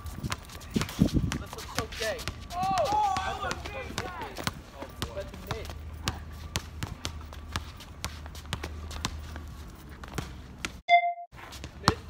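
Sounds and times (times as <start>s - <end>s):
sneaker footsteps on hard court: 0.0s - 10.8s
basketball dribbling: 0.1s - 10.8s
loud beep: 10.9s - 11.3s.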